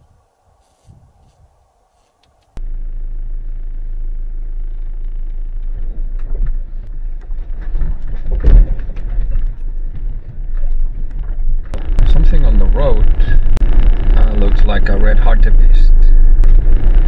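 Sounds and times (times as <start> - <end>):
vehicle engine and road drone: 1.3 - 17.0
bumps and rattles: 4.3 - 17.0.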